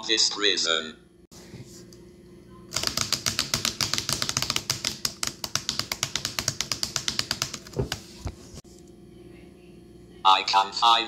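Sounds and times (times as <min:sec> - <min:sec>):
fast typing on laptop keyboard: 0:02.7 - 0:08.2.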